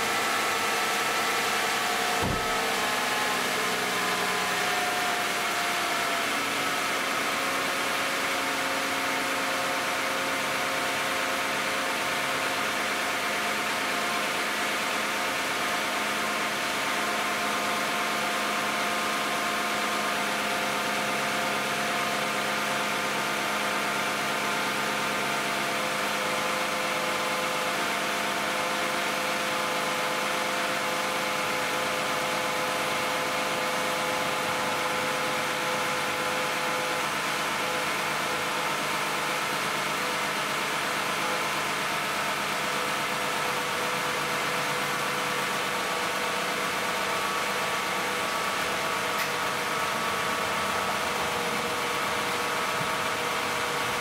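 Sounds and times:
car engine idling: 0.0 - 8.4, 43.8 - 54.0.

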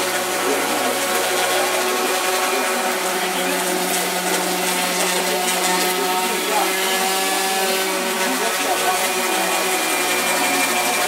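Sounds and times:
orbital sander motor hum: 0.0 - 11.0.

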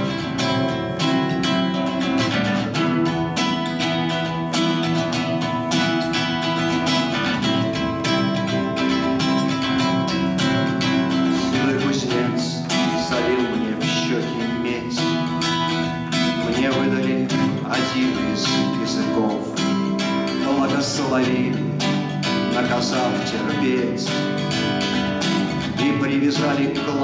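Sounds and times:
acoustic guitar picking: 0.0 - 27.0.

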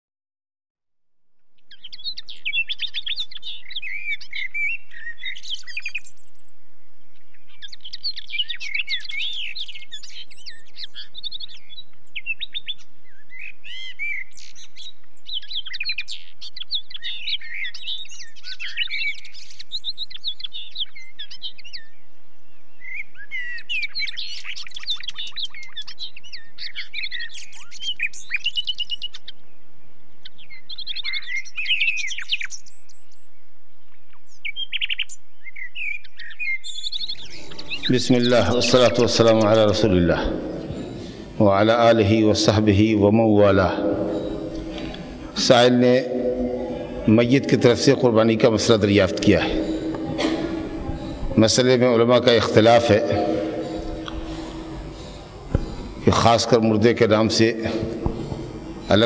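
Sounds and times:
birds chirping: 35.6 - 59.0.

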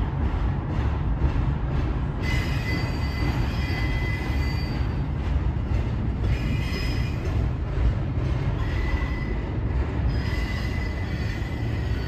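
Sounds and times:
train wheels rumbling on rail: 0.0 - 12.0
high wheel squeal: 2.2 - 5.2, 6.2 - 7.4, 8.6 - 12.0.

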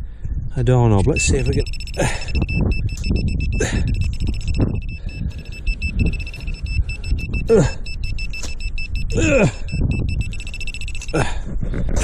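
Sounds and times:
metal detector pulsing tone: 1.0 - 11.2
man grunting: 7.5 - 7.8, 9.1 - 9.6.

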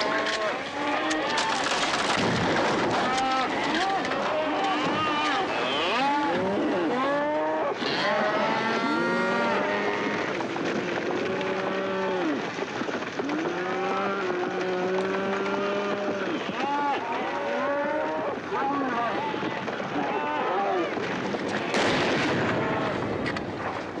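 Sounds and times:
trampling hooves: 0.0 - 24.0
cattle bawling and mooing: 3.0 - 10.3, 13.4 - 19.1.

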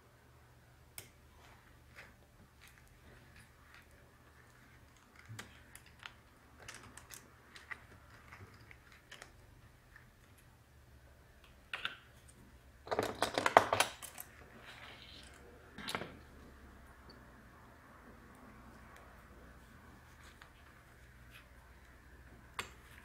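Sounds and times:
plastic laptop parts clicking: 4.9 - 9.3.

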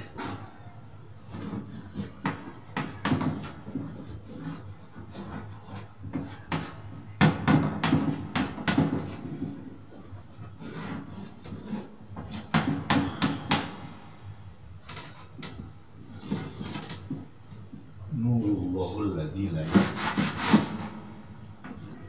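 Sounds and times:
chalk writing on a blackboard: 1.2 - 13.8, 14.8 - 17.8, 19.5 - 21.0, 21.6 - 22.0.

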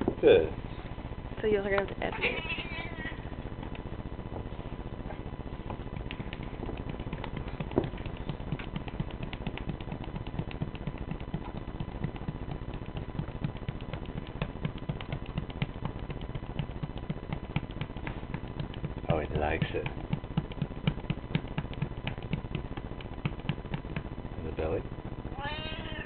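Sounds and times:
hand patting cat: 5.7 - 24.1.

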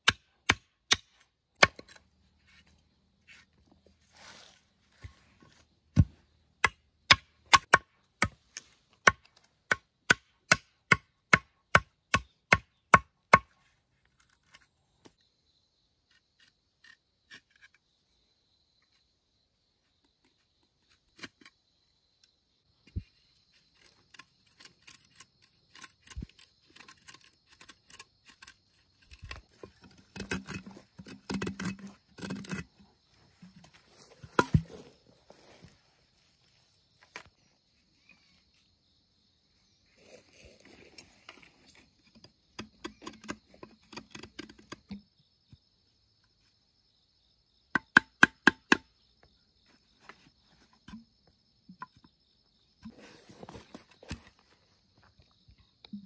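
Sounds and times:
faint high insect drone: 13.5 - 56.0
handwork clicks and scrapes: 23.6 - 32.8.

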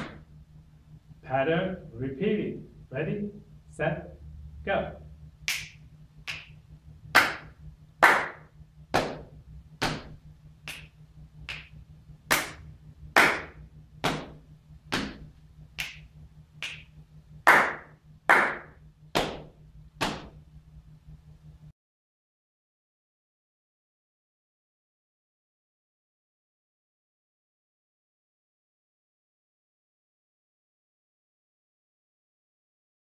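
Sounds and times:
hand strikes on body: 0.0 - 0.2, 8.0 - 10.9, 13.2 - 16.0, 19.2 - 20.4
hand claps: 5.4 - 16.9, 17.5 - 20.4.

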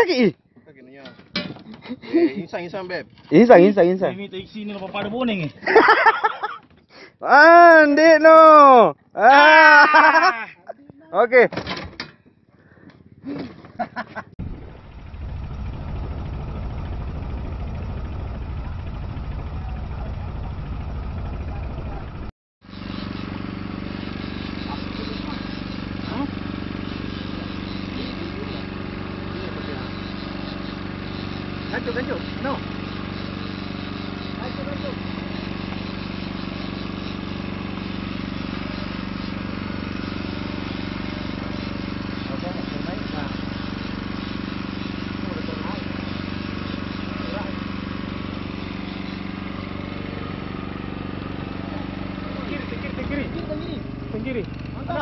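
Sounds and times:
wind: 0.0 - 55.0
boat engine droning: 14.4 - 55.0.

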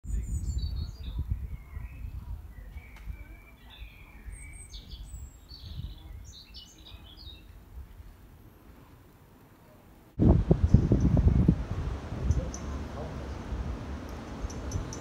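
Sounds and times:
small birds chirping: 0.1 - 7.7, 10.5 - 15.0
low uneven rumble: 7.5 - 15.0.

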